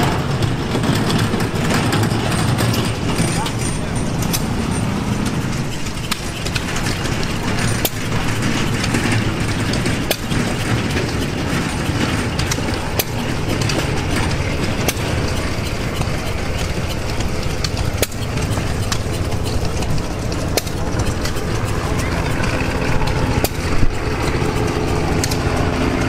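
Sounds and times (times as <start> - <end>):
gas engines clattering: 0.0 - 26.0
engine firing pops: 5.2 - 26.0.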